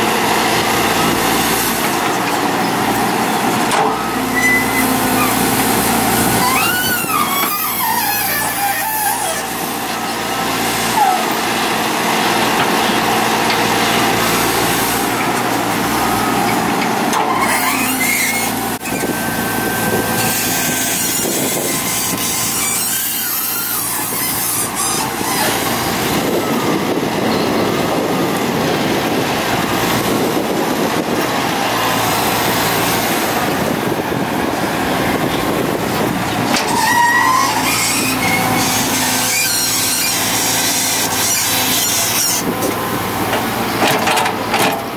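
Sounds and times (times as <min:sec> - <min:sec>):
excavator diesel engine under load: 0:00.0 - 0:44.9
brief machine squeals: 0:04.0 - 0:05.4, 0:06.4 - 0:09.5, 0:17.2 - 0:25.6, 0:36.6 - 0:42.4.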